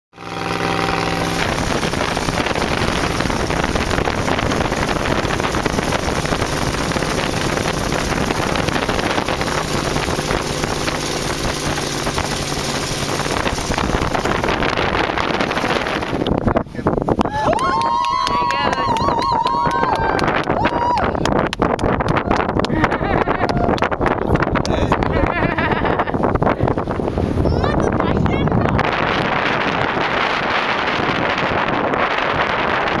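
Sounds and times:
dune buggy engine running: 0.2s - 16.5s, 21.9s - 33.0s
wind rushing over microphone: 0.2s - 33.0s.

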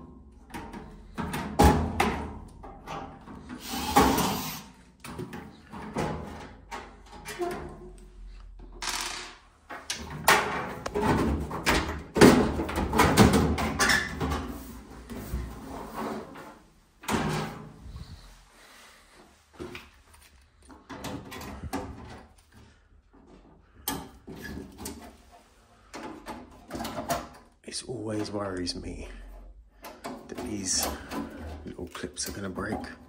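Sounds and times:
clicks and knocks of boiler casing: 0.0s - 3.5s, 9.7s - 14.5s, 25.8s - 27.5s.

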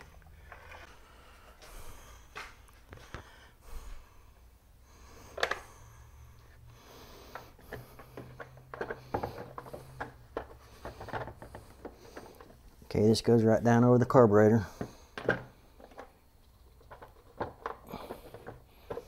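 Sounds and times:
plastic parts clicking: 5.3s - 5.6s, 7.3s - 12.6s, 15.1s - 19.0s.

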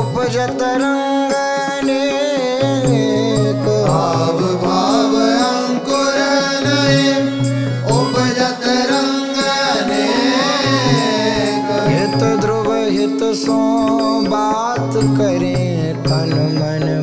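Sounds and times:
gliding melody: 0.6s - 15.4s
steady drone: 3.8s - 14.2s.

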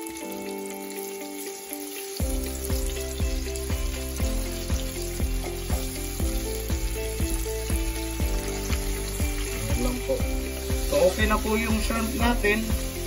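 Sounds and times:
background music with steady beat: 0.0s - 13.0s
hot oil sizzling: 0.0s - 13.0s.

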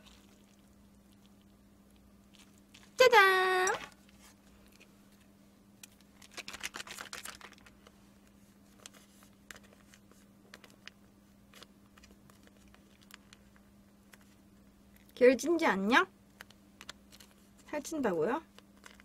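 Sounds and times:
plastic sachet crinkling: 5.9s - 7.9s, 8.7s - 14.4s, 16.4s - 17.5s, 18.6s - 19.0s.

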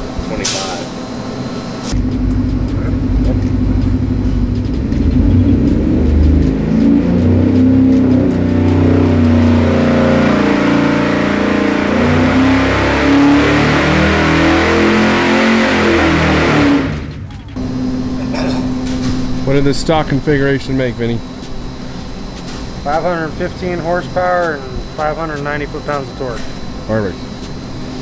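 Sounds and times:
engine revving at full throttle: 1.9s - 21.0s.

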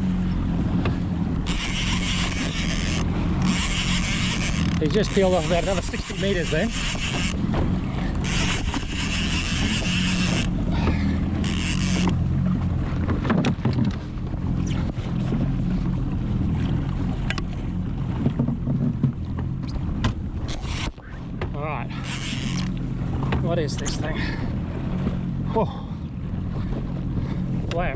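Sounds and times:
choppy water: 0.0s - 27.9s
jet ski engine idling: 0.0s - 27.9s
fishing rod and reel clicks: 1.4s - 7.4s, 8.2s - 10.6s, 11.4s - 12.2s, 17.2s - 17.5s, 20.4s - 21.0s, 22.0s - 22.9s.

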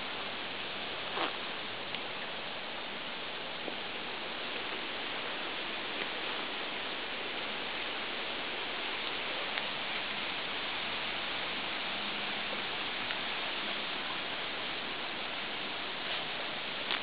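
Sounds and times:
steady hiss: 0.0s - 17.0s
faint ticks: 1.1s - 2.1s, 13.0s - 13.3s, 16.0s - 17.0s.

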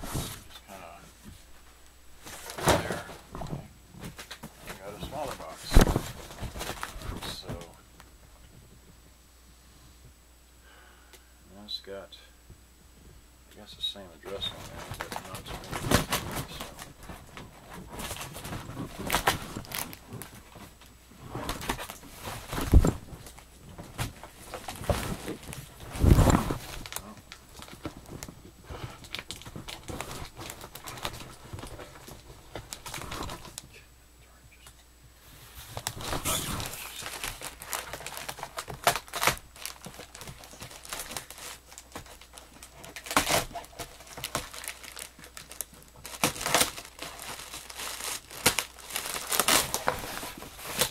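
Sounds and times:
cardboard flaps rustling: 0.0s - 1.6s, 2.2s - 7.8s, 14.3s - 33.7s, 35.3s - 50.9s
box thumping: 2.2s - 4.8s
tape peeling: 35.8s - 50.9s.

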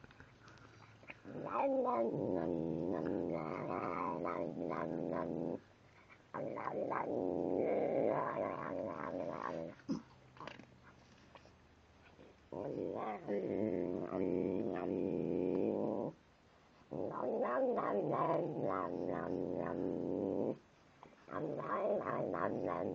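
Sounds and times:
cat growling while eating: 1.1s - 5.7s, 6.3s - 10.6s, 12.5s - 16.2s, 16.9s - 20.6s, 21.3s - 22.9s.

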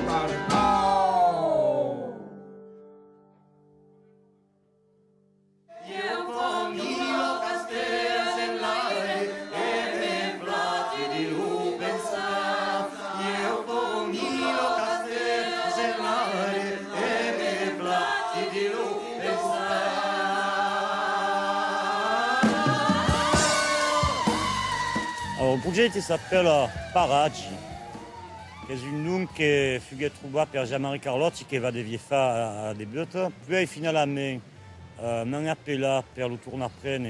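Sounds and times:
live band music: 0.0s - 1.0s, 22.4s - 28.8s
several voices singing together: 5.7s - 25.5s.

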